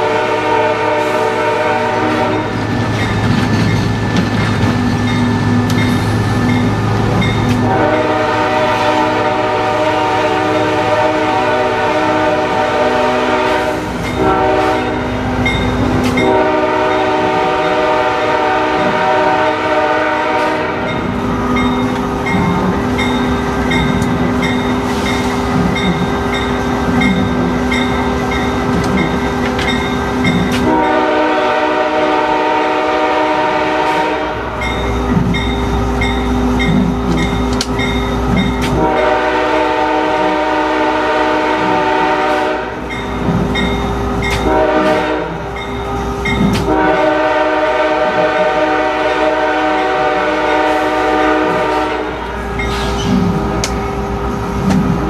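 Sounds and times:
locomotive air horn blasts: 0:00.0 - 0:02.6, 0:07.6 - 0:15.2, 0:16.2 - 0:21.1, 0:30.6 - 0:34.6, 0:38.6 - 0:42.9, 0:44.3 - 0:45.5, 0:46.6 - 0:52.6
locomotive bell ringing: 0:02.3 - 0:07.6, 0:15.4 - 0:17.9, 0:20.8 - 0:31.1, 0:34.6 - 0:38.8, 0:42.8 - 0:44.6, 0:45.5 - 0:46.6, 0:52.5 - 0:53.0.

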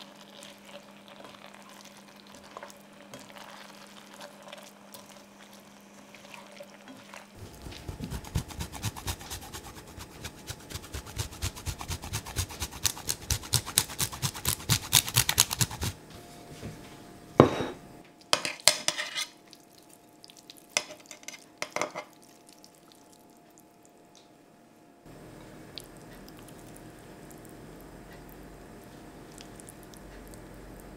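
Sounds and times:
cheese grater rasping: 0:07.4 - 0:16.0.

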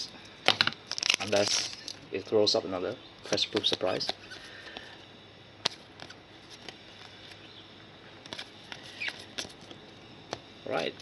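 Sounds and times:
cards sliding: 0:08.2 - 0:09.8.

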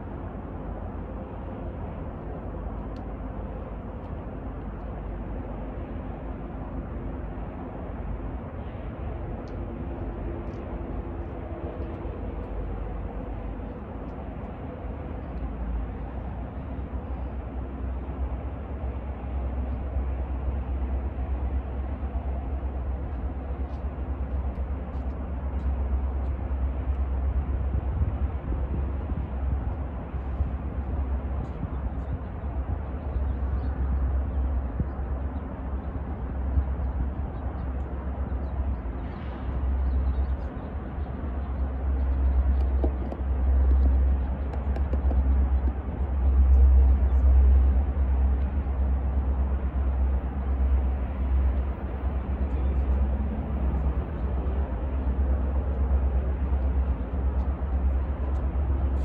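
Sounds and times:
diesel locomotive engine rumble: 0:00.0 - 0:59.0.

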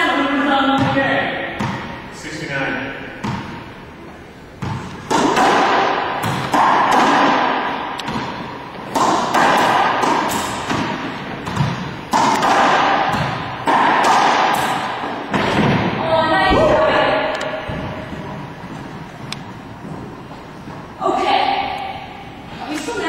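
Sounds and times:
racquetball hits echoing: 0:00.7 - 0:02.0, 0:03.0 - 0:03.8, 0:04.6 - 0:20.4.

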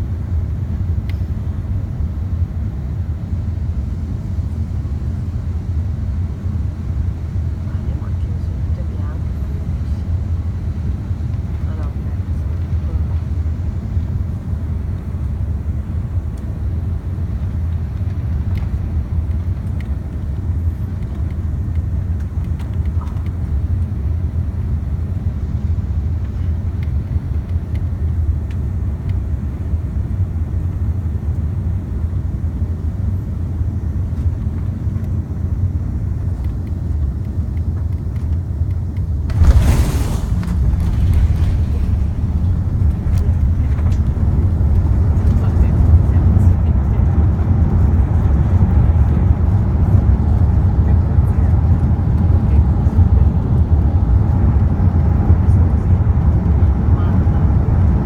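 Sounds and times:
airplane cabin rumble while taxiing: 0:00.0 - 0:58.0
loud rush of noise: 0:39.2 - 0:47.4.

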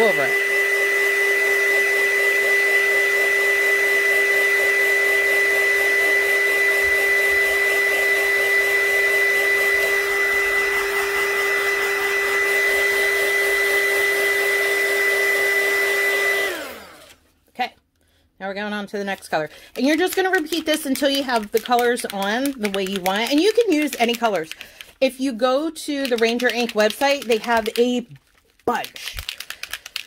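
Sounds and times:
heat gun blowing air: 0:00.0 - 0:17.2.

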